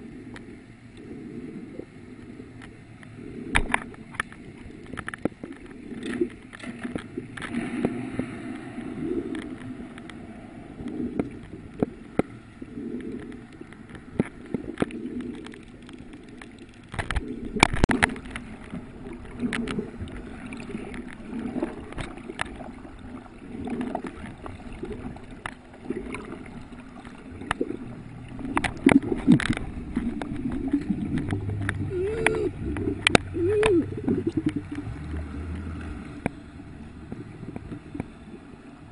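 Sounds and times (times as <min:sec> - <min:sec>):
water gurgling underwater: 0:00.0 - 0:38.9
sharp clicks and knocks: 0:28.4 - 0:36.4.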